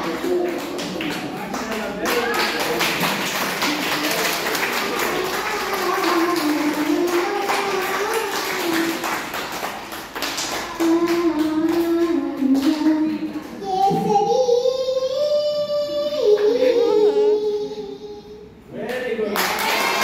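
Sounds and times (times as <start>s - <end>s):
girl singing into microphone: 4.8s - 9.2s, 10.4s - 18.6s.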